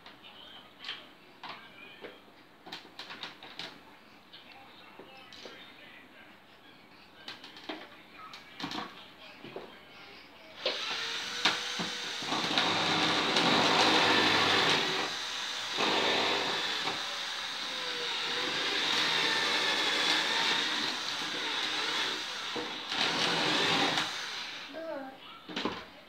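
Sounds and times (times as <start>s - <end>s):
hand drill motor whirring: 10.6s - 24.7s.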